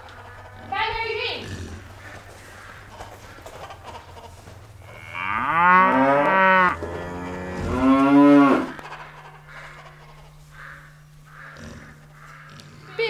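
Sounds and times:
cow mooing: 4.8 - 8.8, 10.6 - 13.0.

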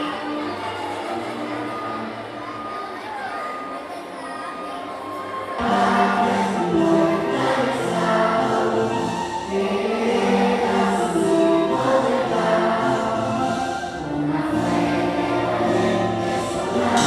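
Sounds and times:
choir singing held notes: 5.1 - 17.0.

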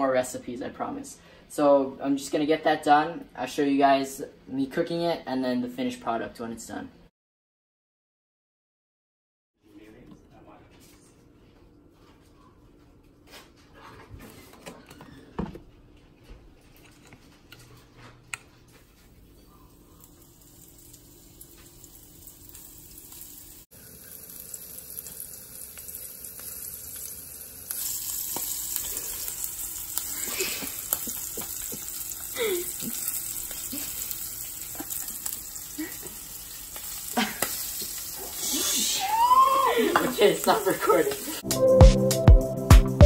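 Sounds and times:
food sizzling in hot oil: 19.6 - 41.4.

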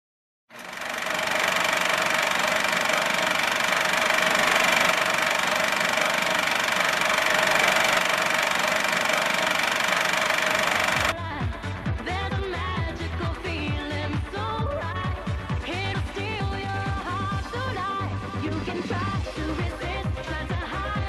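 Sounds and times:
movie projector clatter: 0.5 - 11.2
projector whine: 0.6 - 11.2.

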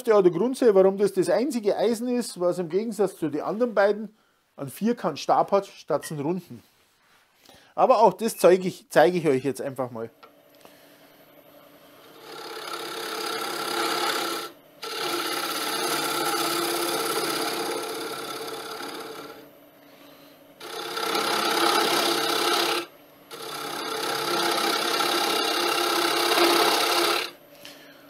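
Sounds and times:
lathe tool scraping wooden bowl: 11.6 - 19.5, 20.6 - 27.4.

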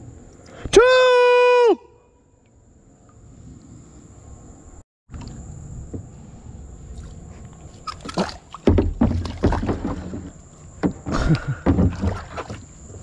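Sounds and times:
water splashing against kayak: 6.9 - 13.0.

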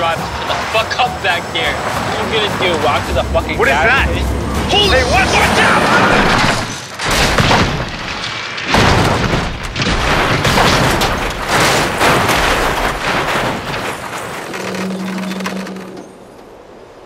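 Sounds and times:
steady low tone: 2.8 - 5.3
car body crashing on ground: 6.2 - 14.5.

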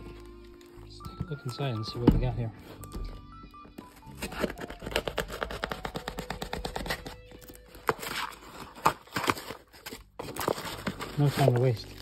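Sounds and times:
cardboard box being torn open: 4.2 - 12.0.

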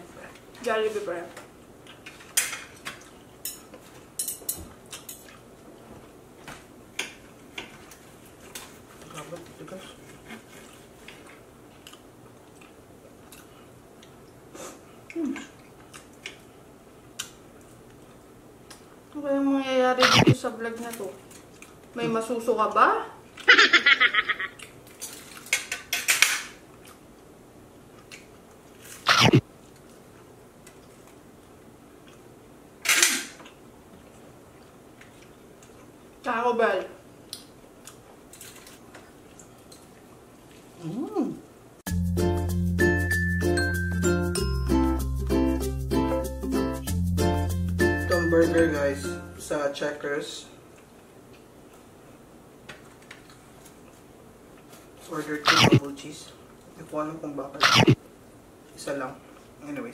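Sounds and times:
cutlery clicking on a plate: 2.0 - 5.4.

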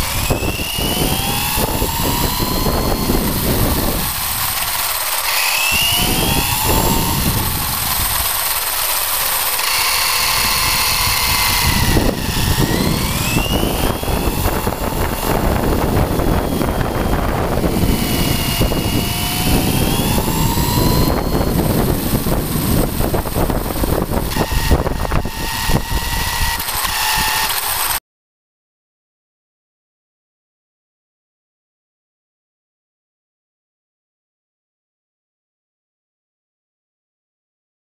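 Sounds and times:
rc truck motor whining: 0.0 - 28.0.

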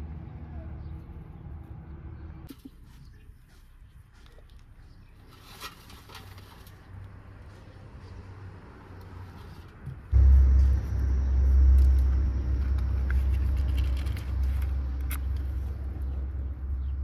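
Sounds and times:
loud low rumble: 10.1 - 17.0.

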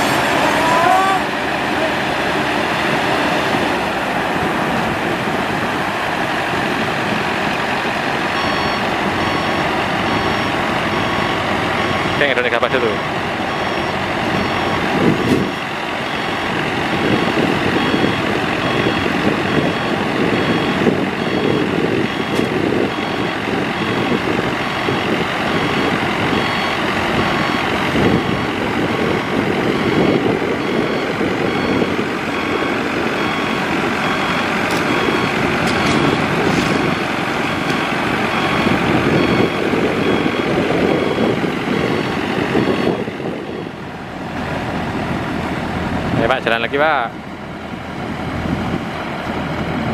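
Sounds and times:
combine harvester running: 0.0 - 49.9
electronic beeper: 8.4 - 14.8.

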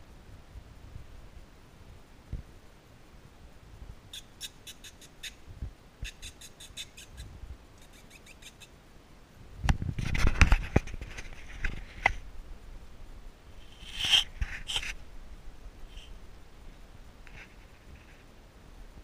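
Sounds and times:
puppies squeaking: 4.2 - 5.4, 6.0 - 8.7, 13.6 - 14.9
rustling: 9.8 - 18.4.

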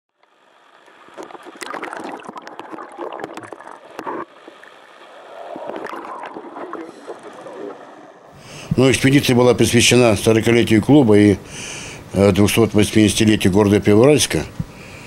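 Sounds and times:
underwater air bubbles gurgling: 0.7 - 8.8.

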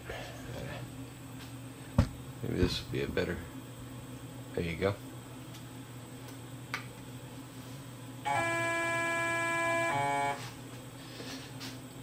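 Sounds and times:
low steady hum: 0.0 - 12.0
steady electronic tone: 8.3 - 10.4.

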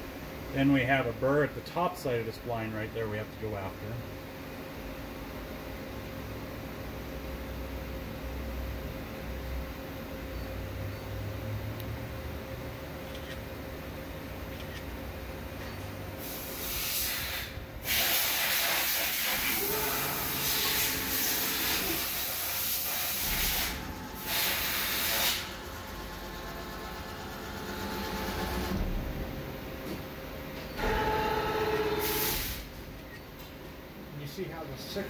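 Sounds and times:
low machine hum: 0.0 - 16.5, 19.2 - 35.0
machine hiss: 16.2 - 29.0, 32.0 - 32.8.

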